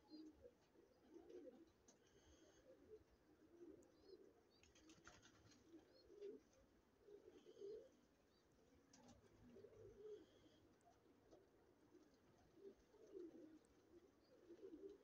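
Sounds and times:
pigeons cooing: 0.0s - 8.0s, 8.9s - 15.0s
small birds chirping: 3.6s - 6.4s, 7.1s - 15.0s.

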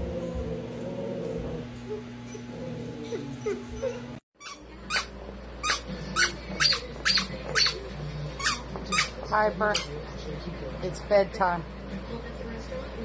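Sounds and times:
squeaky toy squeaking: 4.4s - 7.8s, 8.4s - 9.1s
dog chewing toy: 4.4s - 10.0s.

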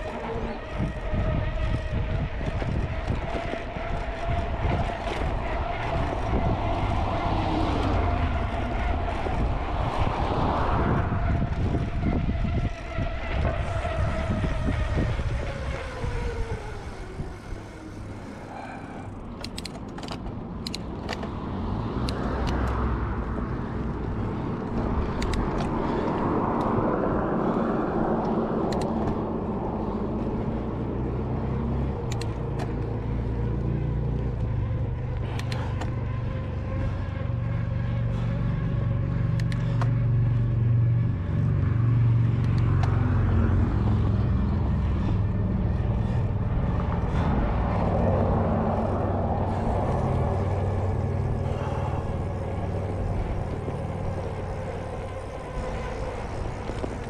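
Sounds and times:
cars passing: 0.0s - 57.0s
wind rumble on microphone: 0.0s - 57.0s
sharp clicks: 19.4s - 21.3s, 25.2s - 25.7s.

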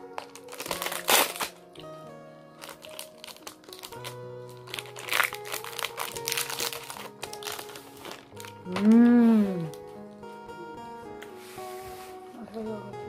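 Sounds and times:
wrapper crinkling: 0.0s - 1.8s, 2.6s - 10.0s
background music with held notes: 0.0s - 13.0s.

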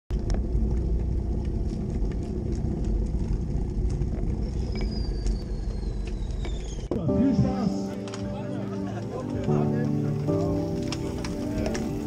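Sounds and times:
steady low rumble: 0.1s - 12.0s
cleated shoes clicking on bricks: 8.0s - 12.0s.

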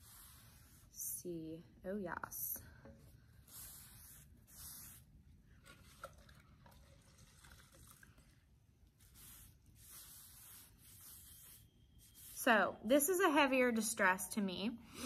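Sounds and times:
sponge swishing on wood: 0.0s - 1.2s, 3.2s - 5.8s, 8.9s - 12.7s.

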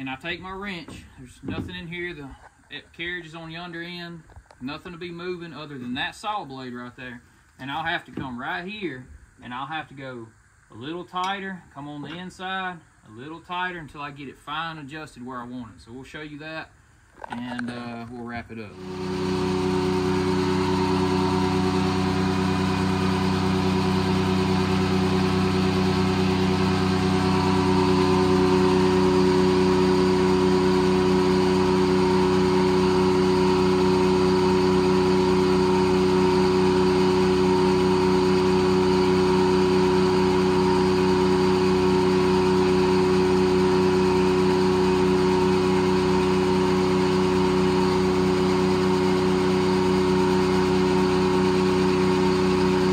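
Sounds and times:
sawmill power unit drone: 18.7s - 52.9s.

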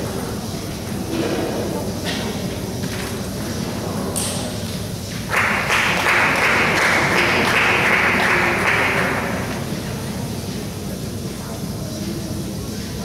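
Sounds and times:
applause: 5.1s - 9.8s.

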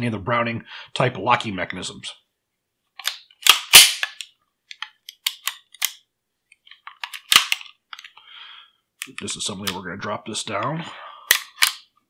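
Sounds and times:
pistol metal clicks: 3.0s - 6.0s, 6.8s - 8.1s, 11.3s - 11.9s.

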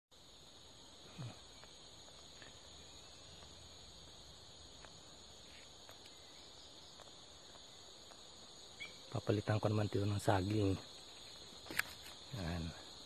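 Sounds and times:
insects buzzing: 0.1s - 13.0s
faint ticks: 4.8s - 6.2s.

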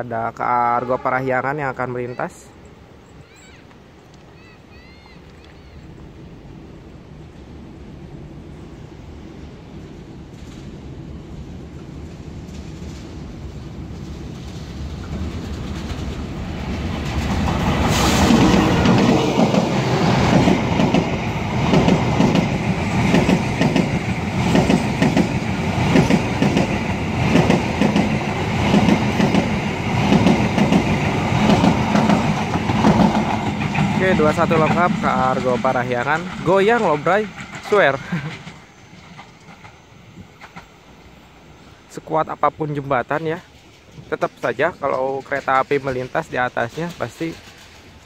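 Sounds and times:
diesel locomotive: 0.0s - 48.0s
train wheels clacking on rails: 14.0s - 40.8s, 43.2s - 48.0s.

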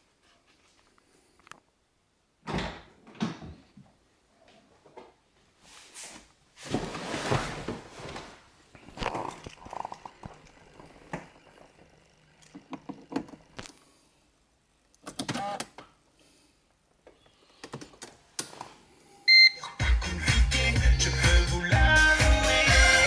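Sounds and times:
loud dance music: 19.8s - 23.0s.

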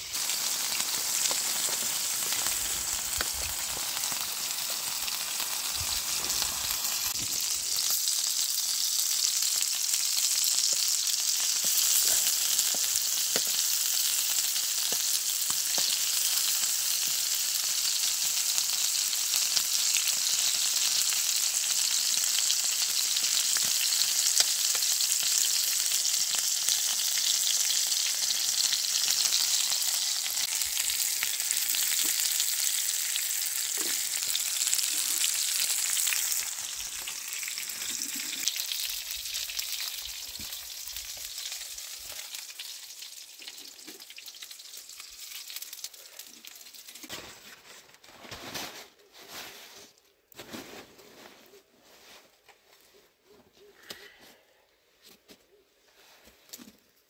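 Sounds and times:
chicken sizzling in a grill pan: 0.0s - 47.1s
pops and crackles: 0.2s - 4.8s, 11.5s - 13.7s, 14.9s - 16.2s.

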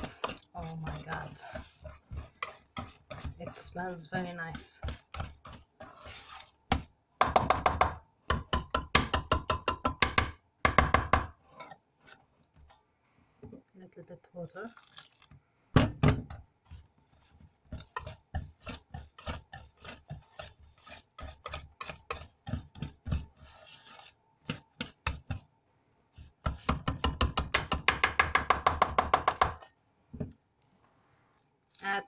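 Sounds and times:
whisk beating in steel bowl: 0.0s - 10.2s, 16.6s - 25.6s.

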